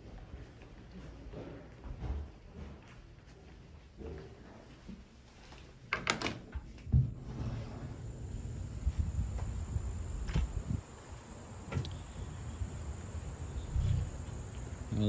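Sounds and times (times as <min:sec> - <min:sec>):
high drone of insects: 0:07.9 - 0:15.0.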